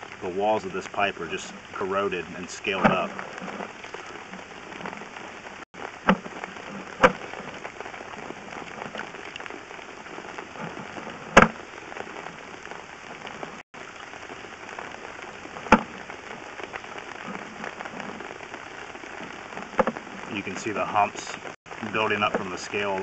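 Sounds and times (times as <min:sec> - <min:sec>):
camera scraping inside pipe: 0:01.3 - 0:09.4.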